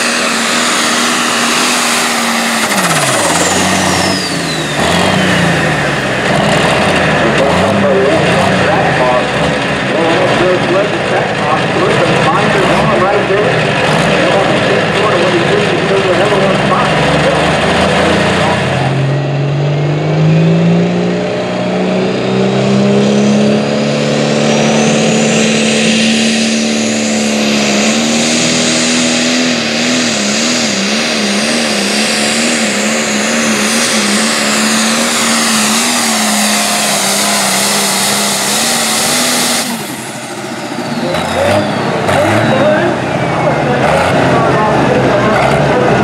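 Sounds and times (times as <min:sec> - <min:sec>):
high whine: 0:00.0 - 0:46.0
tractor engine at full throttle: 0:00.0 - 0:46.0.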